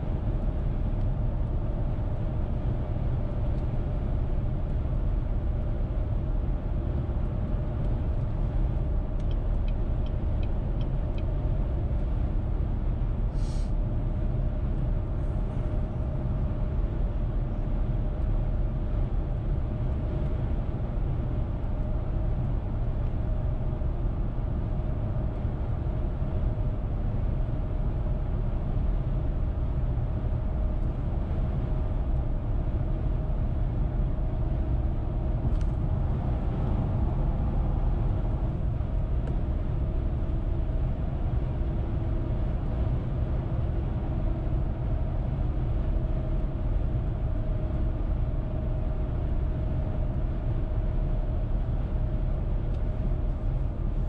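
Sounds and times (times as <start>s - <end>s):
road and tyre rumble: 0.0s - 54.0s.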